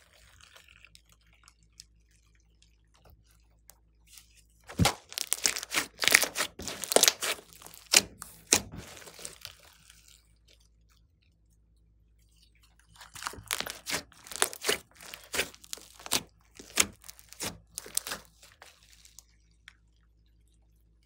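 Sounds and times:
slime crackling and popping: 0:04.7 - 0:10.2, 0:13.0 - 0:19.4.

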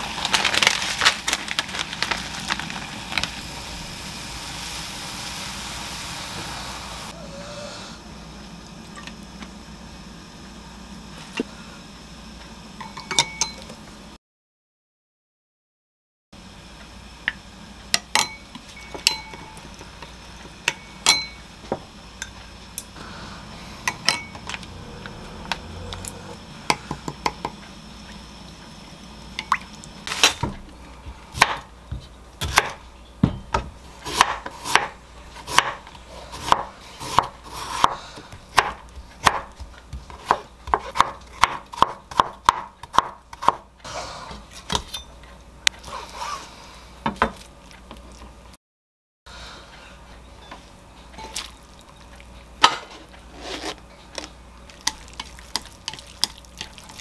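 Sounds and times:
knife chopping on cutting board: 0:31.3 - 0:43.6.

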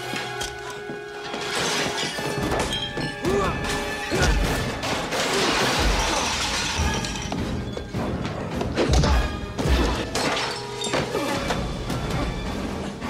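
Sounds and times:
film score music: 0:00.0 - 0:13.0
crashing shattering clatter: 0:01.3 - 0:08.5.

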